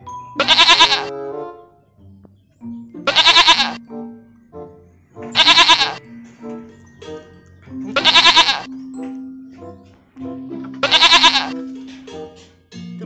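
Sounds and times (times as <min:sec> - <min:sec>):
background music: 0:00.0 - 0:13.0
goat bleating: 0:00.4 - 0:01.1, 0:03.0 - 0:03.8, 0:05.4 - 0:06.0, 0:07.8 - 0:08.7, 0:10.7 - 0:11.6.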